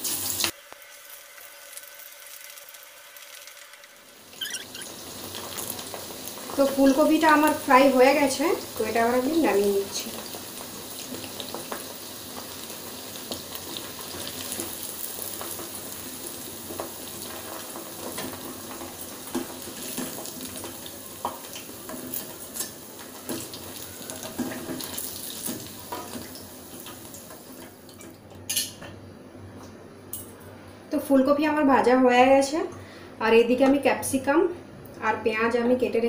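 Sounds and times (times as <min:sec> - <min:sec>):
food sizzling in deep-frying oil: 0:00.0 - 0:27.9.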